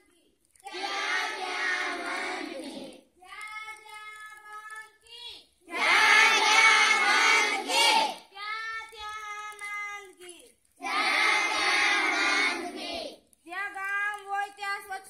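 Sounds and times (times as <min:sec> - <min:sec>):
children chanting call and response: 0:00.6 - 0:03.8, 0:05.7 - 0:09.7, 0:10.8 - 0:13.3.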